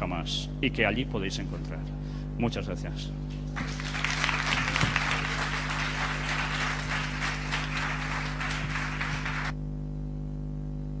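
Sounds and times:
steady low hum: 0:00.0 - 0:11.0
audience applauding: 0:03.5 - 0:09.5.

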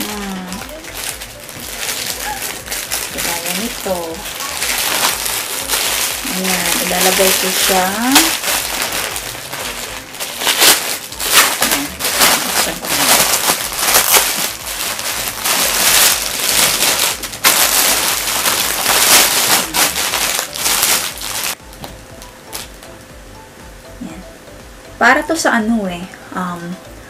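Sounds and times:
plastic packaging crinkling: 0:00.0 - 0:21.6.

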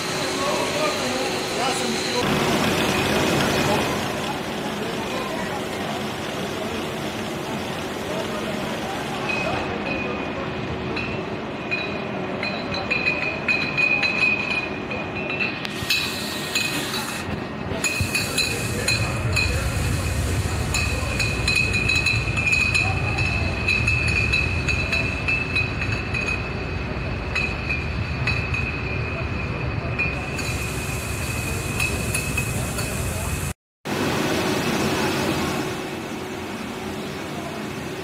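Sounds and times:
machinery high whine: 0:00.0 - 0:38.0
glass bottles clinking: 0:10.9 - 0:17.2, 0:17.8 - 0:19.8, 0:20.6 - 0:30.6.

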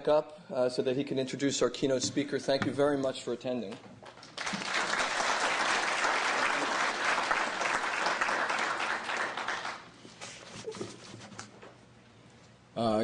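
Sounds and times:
audience applauding: 0:04.2 - 0:09.9.

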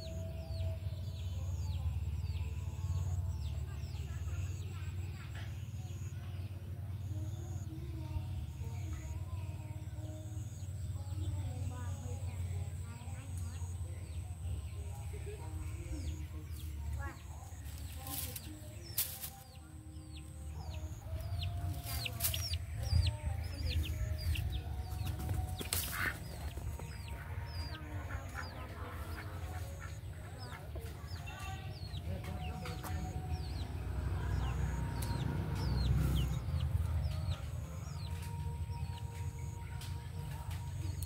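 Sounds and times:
chickens clucking: 0:20.2 - 0:41.0.

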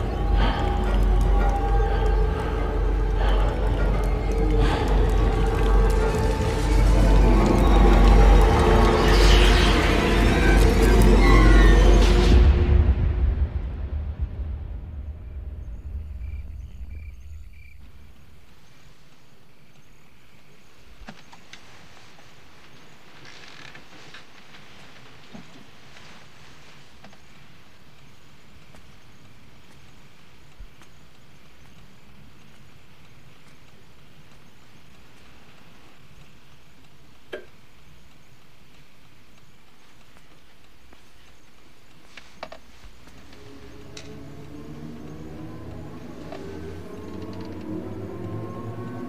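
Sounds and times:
low rumble: 0:00.0 - 0:18.3, 0:42.7 - 0:49.0
crickets chirping: 0:00.0 - 0:49.0
faint clicks: 0:27.0 - 0:44.6.

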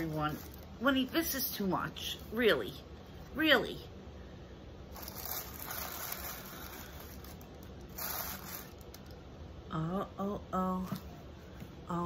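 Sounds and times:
packaging rustling: 0:00.0 - 0:01.1, 0:04.9 - 0:09.2.

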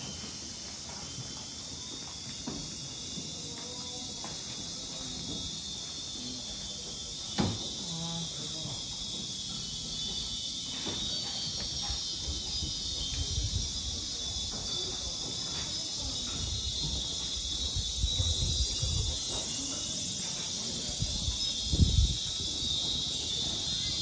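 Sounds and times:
high insect drone: 0:00.0 - 0:24.0
wind chimes tinkling: 0:00.0 - 0:24.0
wind knocking on microphone: 0:11.0 - 0:15.3, 0:16.0 - 0:19.6, 0:20.9 - 0:24.0.

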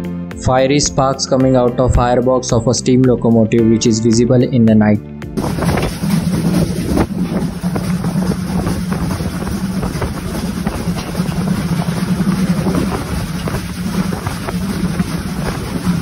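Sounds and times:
train rumbling: 0:05.4 - 0:16.0
wind rushing over microphone: 0:05.4 - 0:16.0.

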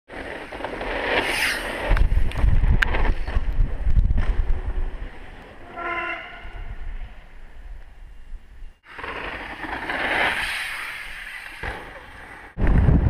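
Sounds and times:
wind buffeting microphone: 0:01.8 - 0:05.3, 0:12.6 - 0:13.0.

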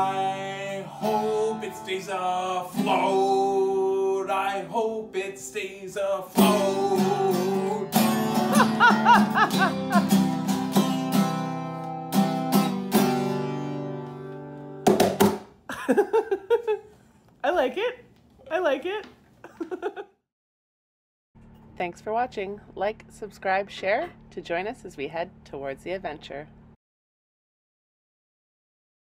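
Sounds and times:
man singing: 0:00.0 - 0:10.0
strummed acoustic guitar: 0:00.0 - 0:15.4.

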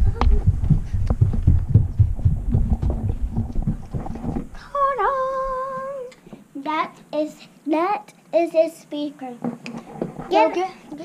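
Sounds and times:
footsteps: 0:00.0 - 0:04.6.

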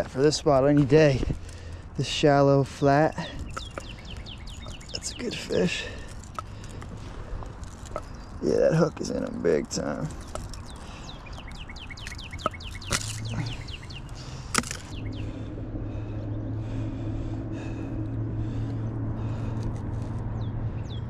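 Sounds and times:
steady low hum: 0:00.0 - 0:21.0
bird chirping: 0:01.4 - 0:15.5, 0:20.2 - 0:21.0.

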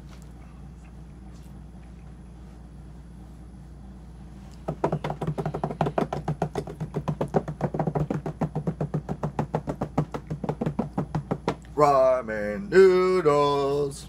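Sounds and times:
low room hum: 0:00.0 - 0:14.0
hands drumming on tabletop: 0:04.7 - 0:11.7.

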